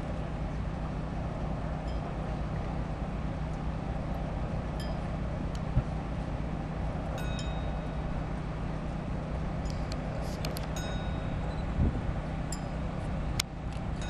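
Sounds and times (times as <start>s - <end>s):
faint high chime-like tones: 7.2s - 8.1s, 10.8s - 11.8s.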